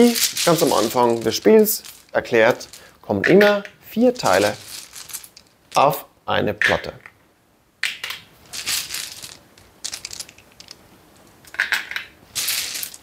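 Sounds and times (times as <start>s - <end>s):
plastic tiles clattering: 0.0s - 6.0s, 8.0s - 10.8s, 11.4s - 13.0s.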